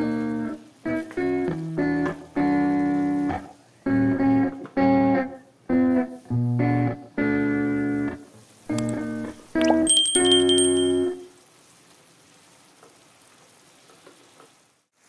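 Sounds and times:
guitar playing chords: 0.0s - 11.2s.

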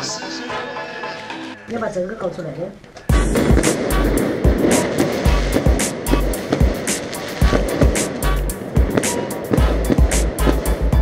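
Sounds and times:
music with heavy bass and beat: 3.1s - 11.0s.

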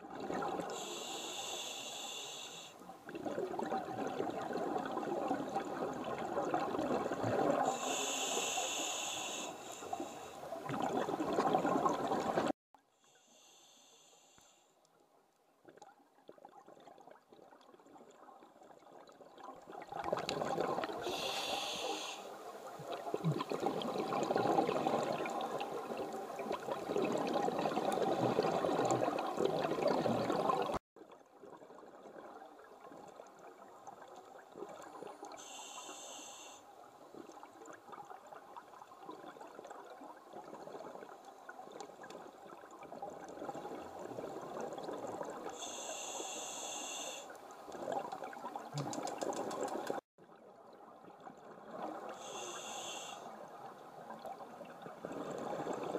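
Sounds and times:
regulator inhalation hiss: 0.8s - 2.8s, 7.7s - 10.4s, 13.1s - 14.6s, 21.0s - 22.4s, 35.4s - 36.6s, 45.6s - 47.4s, 52.2s - 53.3s
exhaled bubbles rushing: 3.1s - 7.7s, 10.5s - 12.5s, 19.3s - 21.1s, 22.8s - 30.8s
soft bubbling: 9.8s - 12.6s, 15.6s - 21.3s, 22.6s - 35.3s.

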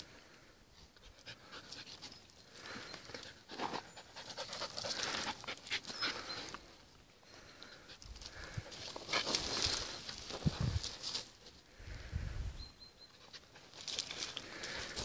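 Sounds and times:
dog panting: 3.2s - 6.4s.

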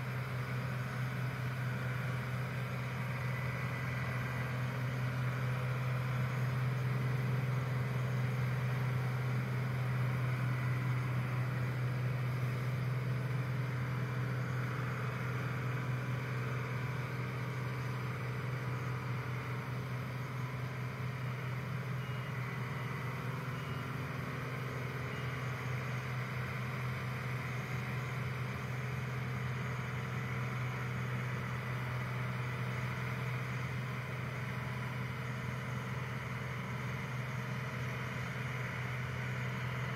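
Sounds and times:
distant combine harvester droning: 0.0s - 39.9s.

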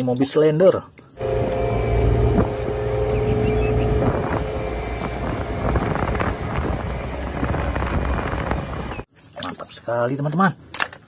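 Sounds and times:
diesel engine running: 1.2s - 9.1s
steady tone in engine hum: 1.2s - 9.1s.

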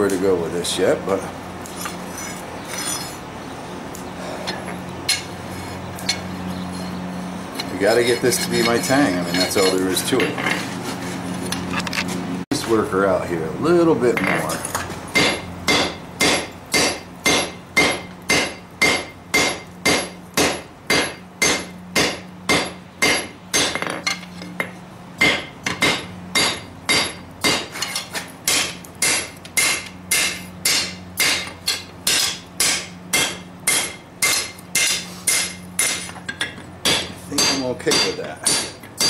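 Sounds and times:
hammer striking steel on anvil: 15.2s - 39.0s.

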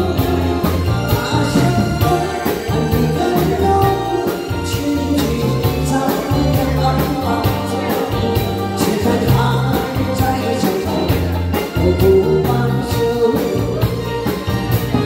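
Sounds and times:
woman singing a pop ballad: 0.0s - 14.1s
band playing guitar keyboard drums: 0.0s - 15.0s.

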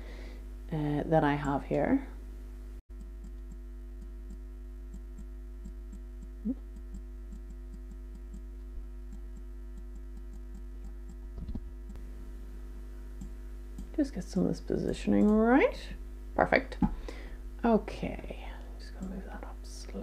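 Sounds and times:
low electrical hum: 0.0s - 20.0s
faint regular ticking: 1.3s - 1.7s, 2.9s - 12.1s, 13.0s - 14.0s, 15.0s - 15.7s.

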